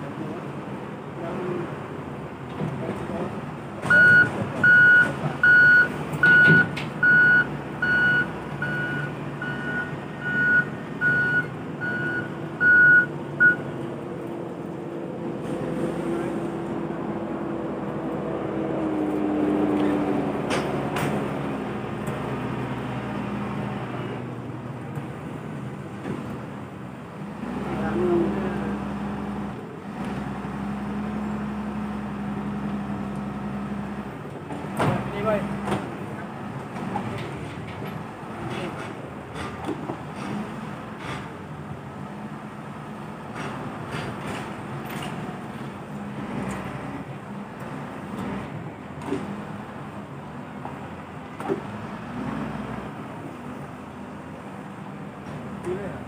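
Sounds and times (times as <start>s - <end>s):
engine running low: 0.0s - 56.0s
reversing alarm beeping: 3.9s - 13.6s.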